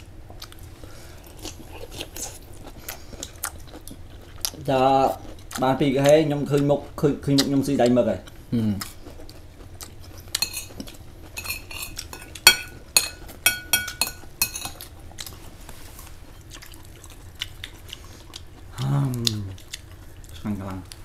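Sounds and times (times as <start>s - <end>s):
utensils clinking against dishes: 10.4s - 10.8s, 11.4s - 14.8s.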